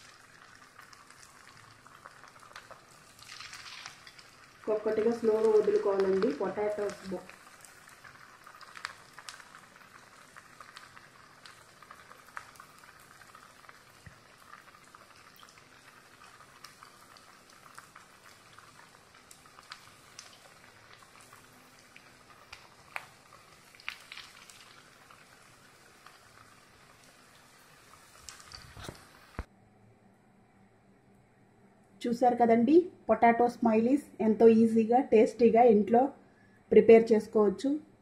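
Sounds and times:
food sizzling in hot oil: 0.0 - 29.5
oil popping and crackling: 0.0 - 29.5.

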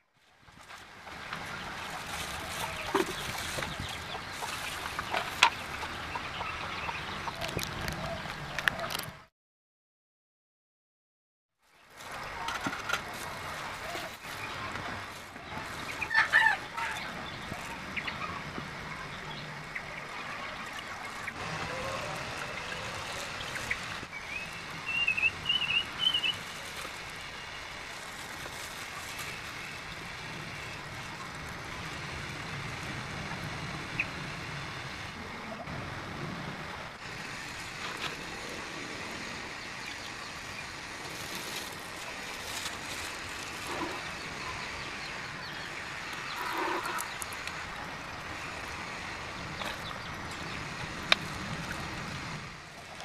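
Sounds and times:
bird chirping: 19.0 - 26.4.

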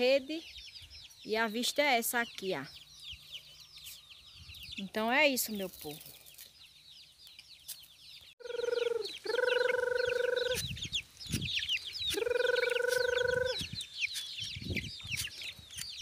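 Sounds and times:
chicks peeping: 0.0 - 16.0
adult chicken long calls: 8.4 - 10.8, 12.1 - 13.8.

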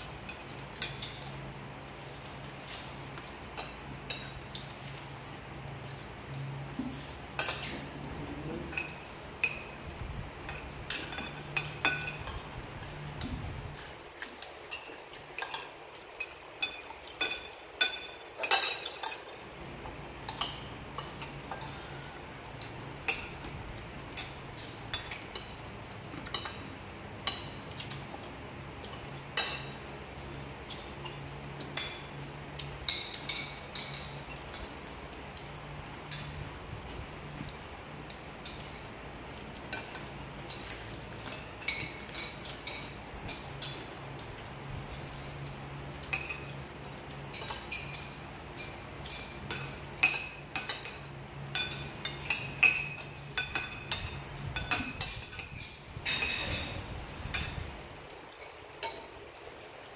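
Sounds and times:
spoons clinking on ceramic plates: 0.2 - 1.4, 6.9 - 7.9, 8.6 - 9.8, 10.4 - 12.5, 14.6 - 19.4, 28.8 - 35.0, 39.6 - 43.9, 45.0 - 57.7.

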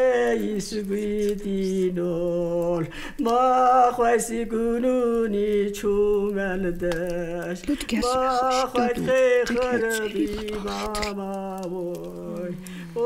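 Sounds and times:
mourners chanting and wailing: 7.8 - 13.0.

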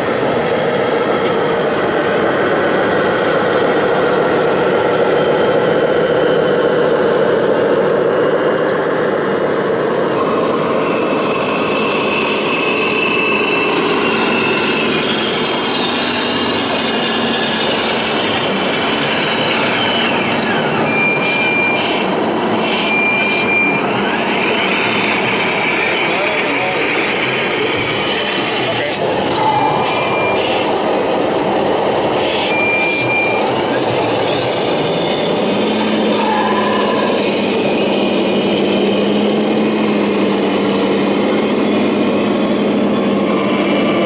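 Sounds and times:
model trucks running: 0.0 - 44.0
electronic beeps: 16.8 - 26.3, 29.2 - 35.6.

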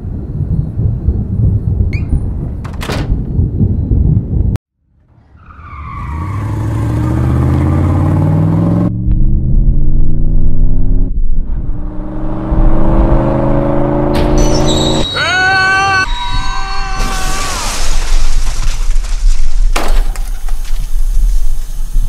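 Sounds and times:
car engine accelerating: 5.9 - 15.0.

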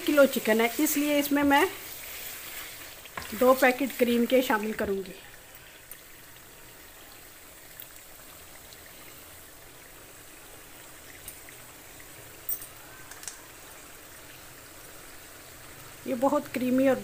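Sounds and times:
pot hissing on low heat: 0.0 - 7.6.

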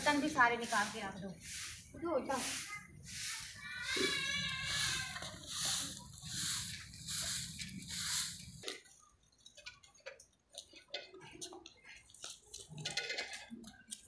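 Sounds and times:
broom sweeping dirt: 0.0 - 8.9.

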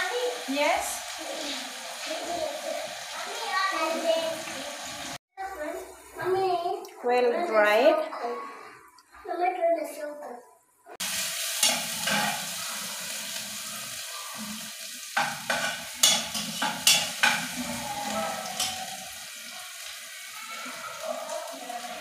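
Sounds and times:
onions sizzling in pot: 0.0 - 5.2, 11.0 - 22.0
utensil scraping against pot: 11.6 - 12.9, 15.2 - 19.2.

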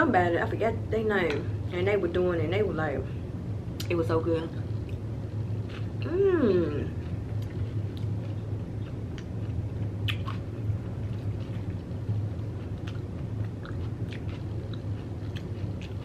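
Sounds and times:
steady low hum: 0.0 - 16.0
chewing crunchy snack: 7.0 - 16.0.

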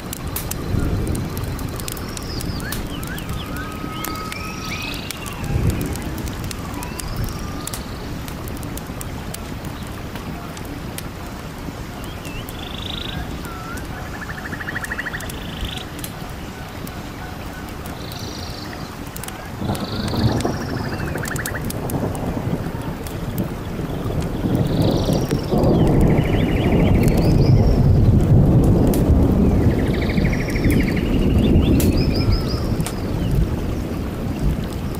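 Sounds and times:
small birds chirping: 0.0 - 28.0, 29.3 - 34.9
rapid bird trill: 2.0 - 5.5.

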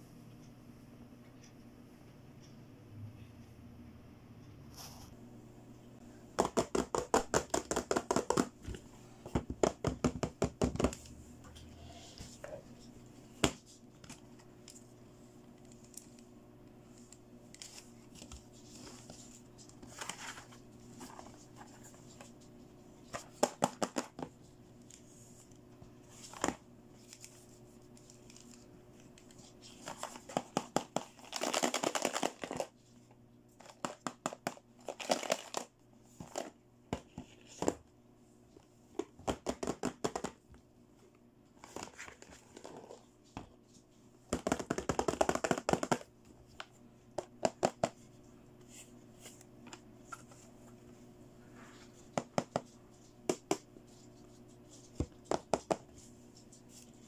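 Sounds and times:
faint steady hum: 0.0 - 57.0
plastic toy cases clicking: 30.2 - 32.7, 33.6 - 35.7.

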